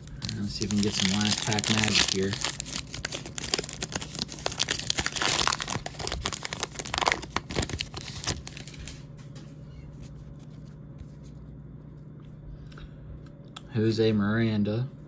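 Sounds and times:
cards rustling and ticking: 0:00.0 - 0:09.0
wrapper tearing and crinkling: 0:00.0 - 0:09.0.

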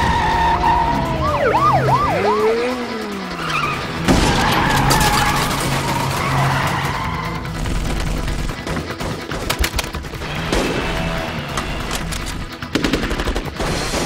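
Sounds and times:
car tyres squealing: 0:00.0 - 0:01.3, 0:03.3 - 0:07.5
car engine and road noise: 0:00.0 - 0:12.7.

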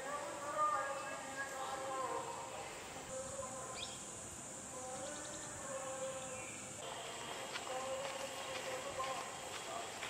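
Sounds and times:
faint distant voices: 0:00.0 - 0:10.0
bird chirp: 0:03.7 - 0:04.1, 0:04.8 - 0:06.8.

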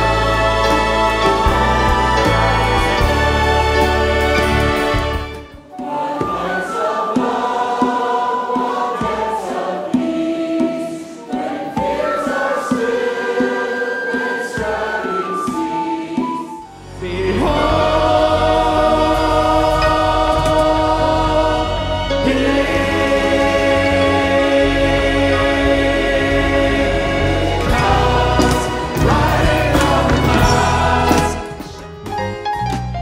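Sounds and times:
mixed choir singing worship song: 0:00.0 - 0:32.0
musical accompaniment: 0:00.0 - 0:33.0.

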